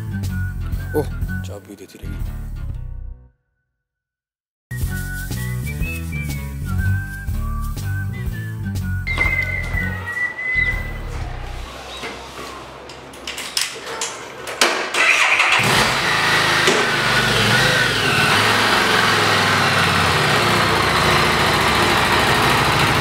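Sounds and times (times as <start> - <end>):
electric starter cranking: 12.9 - 23.0
motorcycle engine idling: 15.9 - 23.0.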